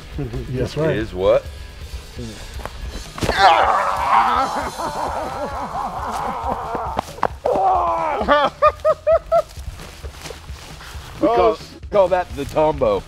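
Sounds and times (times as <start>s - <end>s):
men whooping and laughing: 3.2s - 10.0s.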